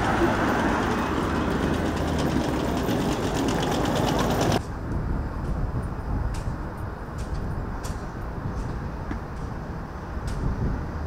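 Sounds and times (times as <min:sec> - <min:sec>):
aircraft machinery noise: 0:00.0 - 0:11.0
fast ticking rattle: 0:00.1 - 0:04.6.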